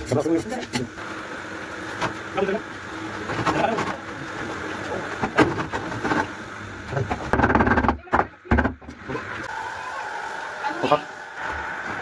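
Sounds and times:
people talking: 0:07.8 - 0:11.1.

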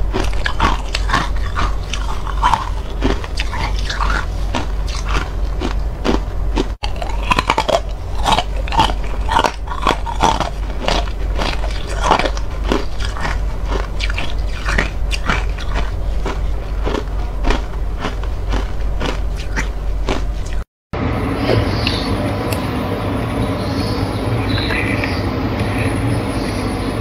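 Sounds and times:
frost being crunched and chewed: 0:00.0 - 0:20.7.

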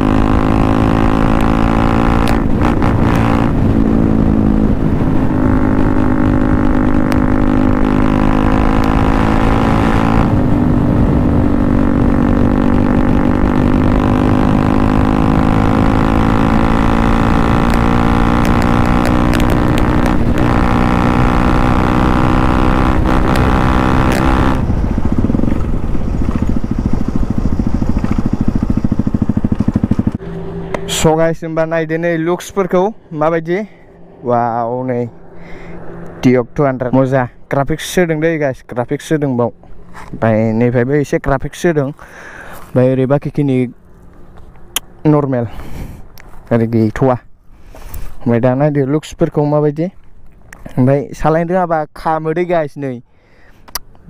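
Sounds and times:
motorcycle engine at high speed: 0:00.0 - 0:37.0
wind rush: 0:01.7 - 0:16.2, 0:18.1 - 0:30.9.

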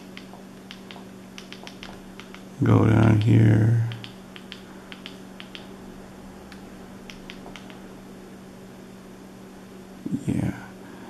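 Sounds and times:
remote button clicks: 0:00.0 - 0:02.5, 0:03.2 - 0:05.7, 0:06.5 - 0:07.8
low hum: 0:00.0 - 0:11.0.

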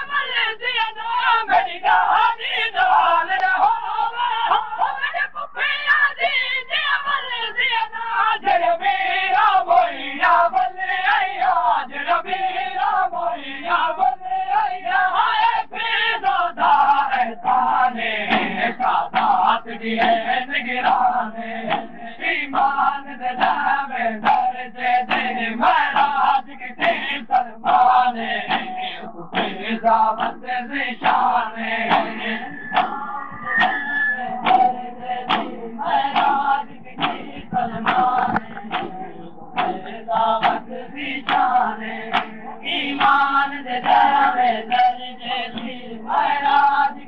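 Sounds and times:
crowd chanting along: 0:00.0 - 0:47.0
rhythmic hand slaps on chests: 0:16.6 - 0:33.0, 0:34.4 - 0:46.9.

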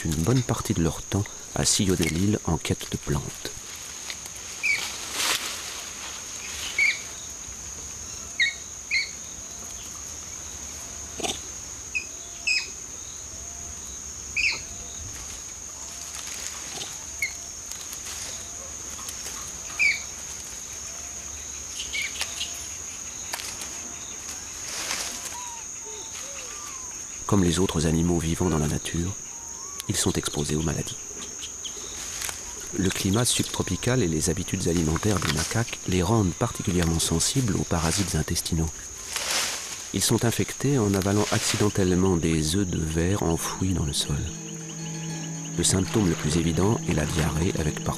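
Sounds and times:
high-pitched insect trill: 0:00.0 - 0:47.9
sharp high animal calls: 0:25.2 - 0:27.0, 0:29.2 - 0:30.0.

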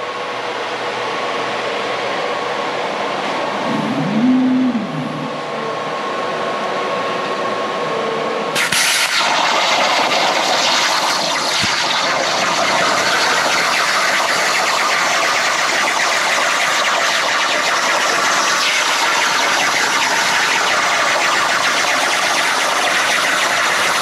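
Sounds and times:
plasma torch hissing: 0:08.6 - 0:24.0.

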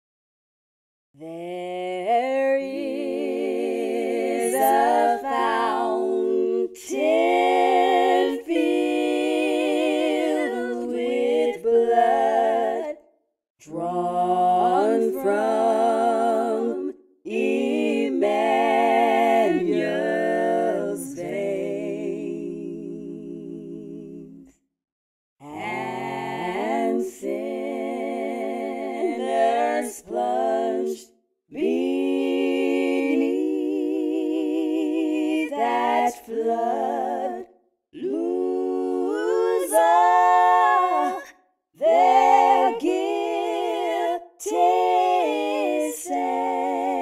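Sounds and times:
woman singing a hymn: 0:39.0 - 0:41.2.

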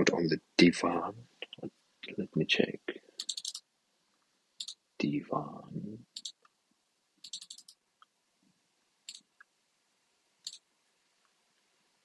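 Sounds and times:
faint keyboard clicking: 0:03.2 - 0:03.6, 0:06.1 - 0:06.6, 0:07.2 - 0:08.1.

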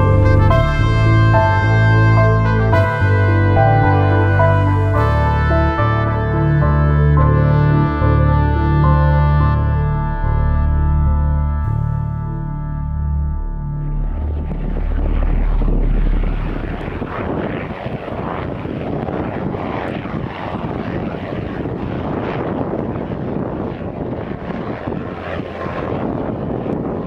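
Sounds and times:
deep low rumble: 0:00.0 - 0:27.0
helicopter rotor and engine: 0:14.0 - 0:27.0.

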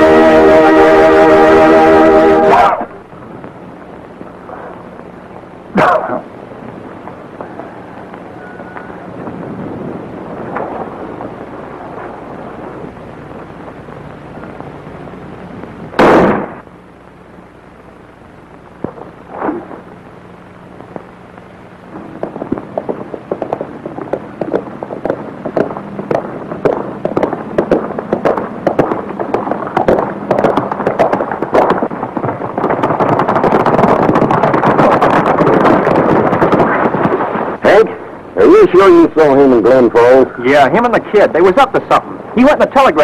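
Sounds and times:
horses galloping on hard ground: 0:05.8 - 0:14.7, 0:21.9 - 0:37.9
loud sharp crack: 0:15.9 - 0:16.7.

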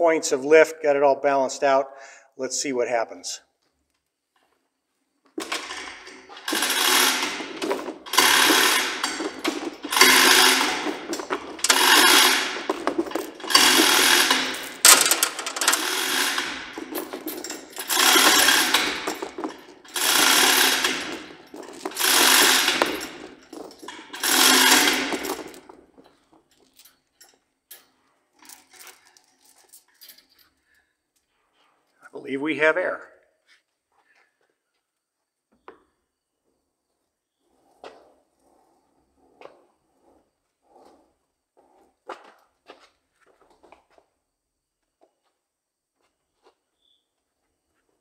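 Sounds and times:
chain hoist clattering: 0:05.4 - 0:30.6.

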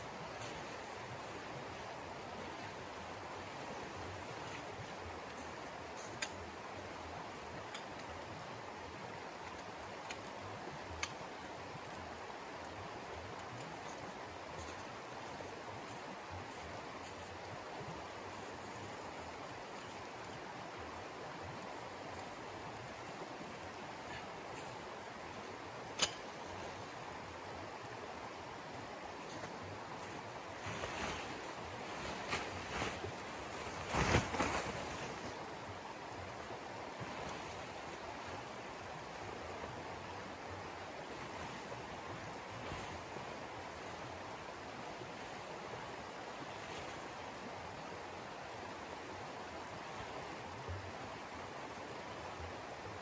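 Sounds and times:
tent fabric rustling: 0:00.0 - 0:06.1, 0:29.2 - 0:39.4, 0:41.0 - 0:44.3
flowing water: 0:00.0 - 0:53.0
sharp clicks of pole handling: 0:09.4 - 0:11.4, 0:25.9 - 0:26.7.

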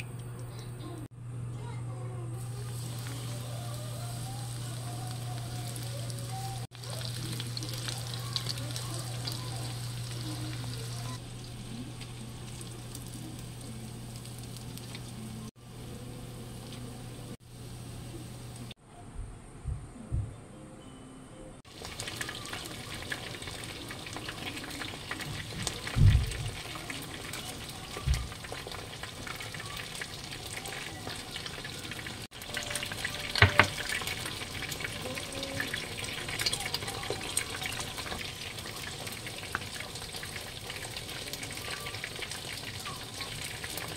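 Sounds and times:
shrimp deep-frying in oil: 0:02.4 - 0:18.8, 0:21.7 - 0:43.9.

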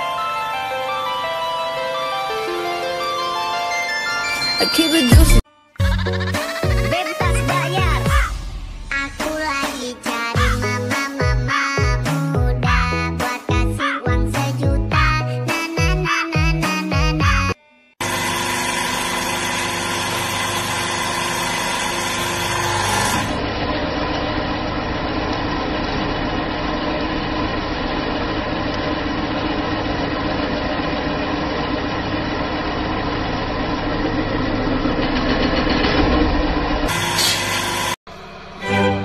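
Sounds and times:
hydraulic press whirring: 0:18.0 - 0:26.4, 0:27.4 - 0:38.6.

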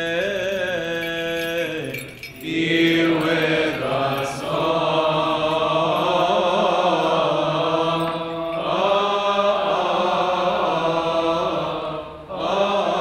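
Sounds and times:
man chanting a long melisma: 0:00.0 - 0:13.0.

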